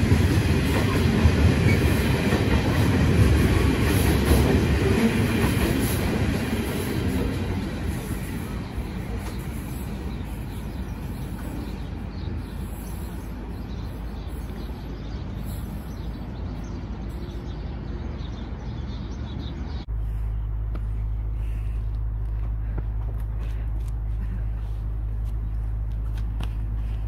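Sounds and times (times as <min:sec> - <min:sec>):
train wheels rumbling on rails: 0:00.0 - 0:17.6.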